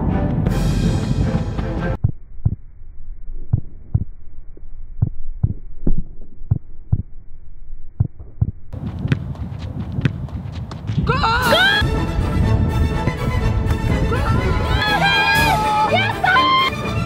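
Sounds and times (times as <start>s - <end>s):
background music: 0.0s - 2.0s, 11.4s - 17.0s
muffled low dull thumps: 0.0s - 2.7s, 3.4s - 7.1s, 7.9s - 11.1s.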